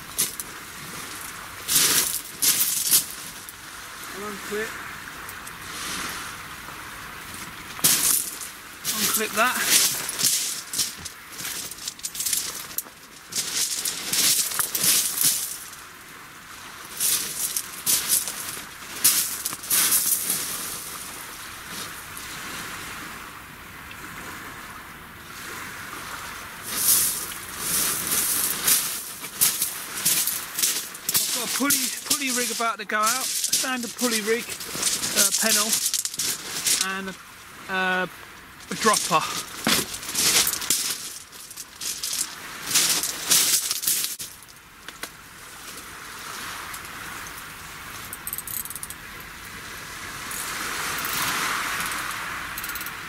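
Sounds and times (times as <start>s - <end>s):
crunching footsteps: 0.0s - 3.6s, 6.7s - 15.8s, 16.8s - 22.0s, 26.6s - 37.2s, 38.6s - 45.9s
fishing tackle rustling and clinking: 0.0s - 3.6s, 7.4s - 15.9s, 16.9s - 21.1s, 26.7s - 37.1s, 38.6s - 49.0s, 50.3s - 53.0s
sea and wind hiss: 0.0s - 53.0s.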